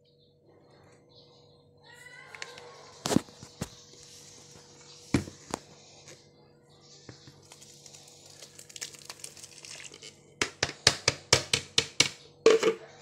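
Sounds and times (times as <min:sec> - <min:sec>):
thick mix pouring into bucket: 0:07.4 - 0:10.1.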